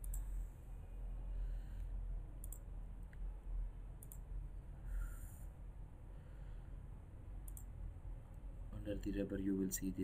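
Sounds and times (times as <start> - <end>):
computer mouse clicks: 0.0 - 0.3, 2.4 - 3.3, 4.0 - 4.3, 7.4 - 7.7
low steady hum: 0.0 - 10.0.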